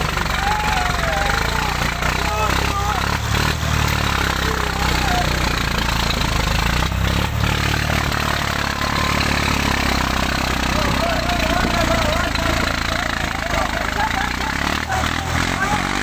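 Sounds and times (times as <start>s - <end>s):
men calling and shouting: 0.0s - 16.0s
tractor engine droning: 0.0s - 16.0s.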